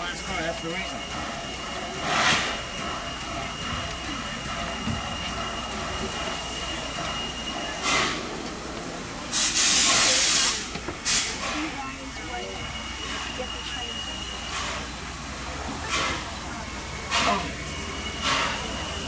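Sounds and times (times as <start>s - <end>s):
steady steam hiss: 0.0s - 19.0s
bursts of escaping steam: 9.2s - 11.7s.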